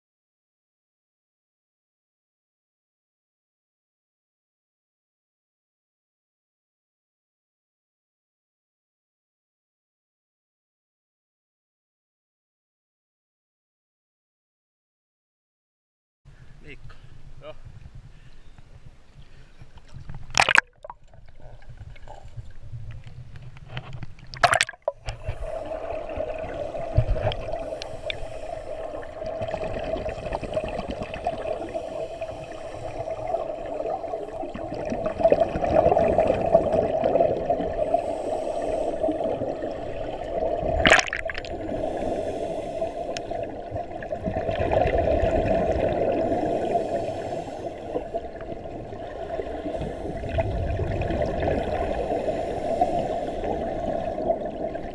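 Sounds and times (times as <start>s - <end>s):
sharp knocks underwater: 19.8s - 25.4s, 26.9s - 27.5s, 40.8s - 41.5s
underwater bubbling exhalations: 20.2s - 22.8s, 24.3s - 54.9s.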